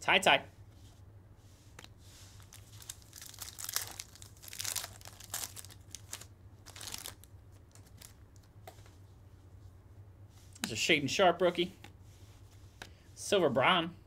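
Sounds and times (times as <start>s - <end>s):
foil wrappers crinkling: 2.4s - 8.5s.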